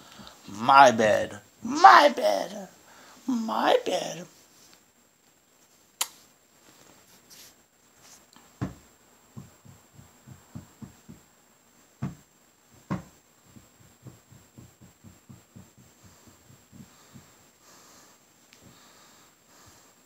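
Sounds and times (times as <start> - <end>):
hand tapping on blanket: 9.4 - 11.2, 12.0 - 17.4.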